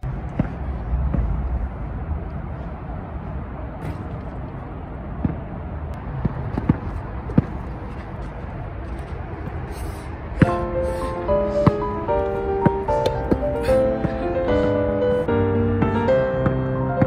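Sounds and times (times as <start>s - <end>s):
traffic rumble: 0.0s - 17.0s
basketball bouncing on court: 6.1s - 7.7s, 10.4s - 10.7s, 11.6s - 12.0s, 12.6s - 14.2s, 15.8s - 17.0s.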